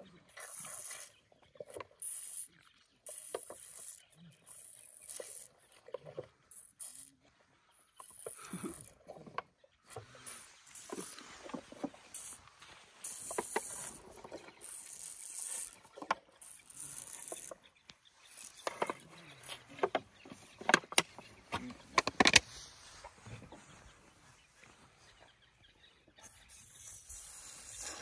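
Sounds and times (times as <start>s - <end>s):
elephant slurping from bottle: 0.3s - 7.2s, 7.9s - 17.6s, 18.2s - 21.0s, 26.3s - 28.0s
plastic bottle clicks and knocks: 20.6s - 22.4s.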